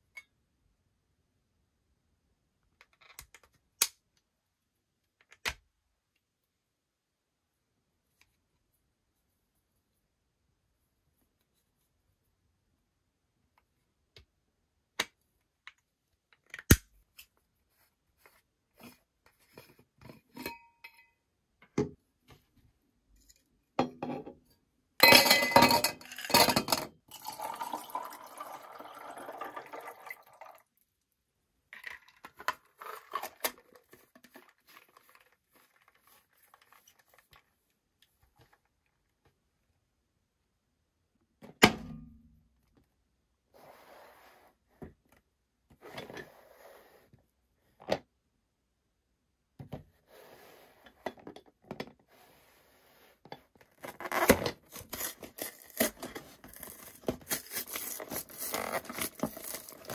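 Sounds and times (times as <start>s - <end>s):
metal bottle knocks and clinks: 25.0s - 26.9s.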